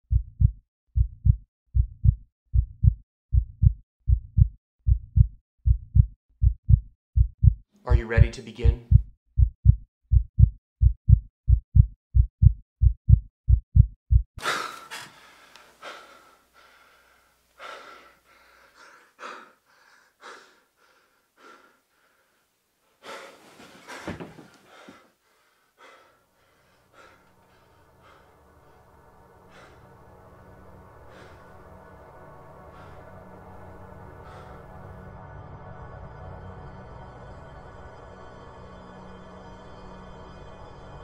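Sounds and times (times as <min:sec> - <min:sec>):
fast pounding heartbeat: 0:00.1 - 0:14.3
man panting and gasping: 0:14.4 - 0:22.4, 0:23.0 - 0:28.5.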